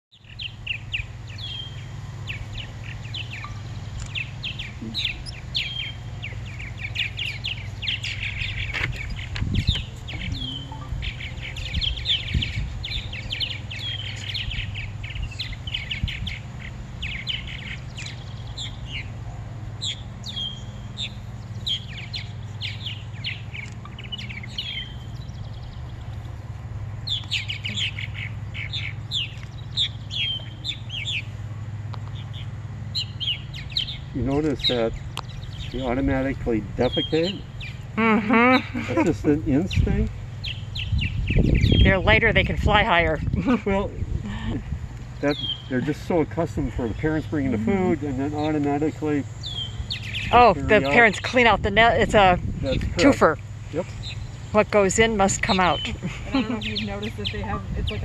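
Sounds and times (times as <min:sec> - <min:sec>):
birds chirping and chattering: 0:00.1 - 0:58.0
steady low hum: 0:00.2 - 0:58.0.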